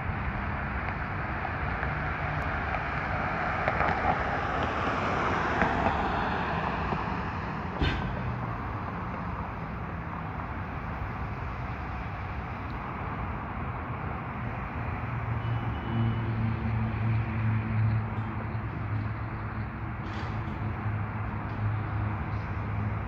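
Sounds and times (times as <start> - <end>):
car passing on wet road: 1.8 - 7.8
sharp knock: 7.8 - 8.3.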